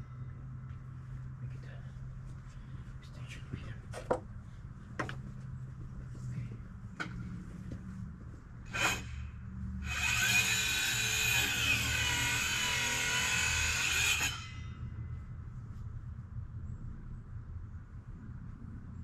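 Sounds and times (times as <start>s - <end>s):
power tool whining: 8.7s - 14.7s.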